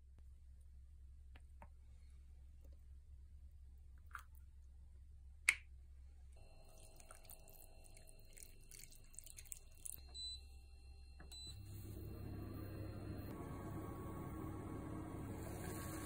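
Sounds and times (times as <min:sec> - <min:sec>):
liquid pouring into pot: 0:06.5 - 0:10.0.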